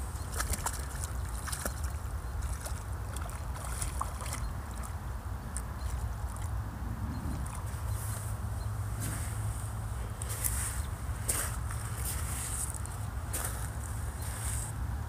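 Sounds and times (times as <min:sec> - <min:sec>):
wind rumbling on microphone: 0:00.0 - 0:15.0
dog splashing in water: 0:00.3 - 0:04.9.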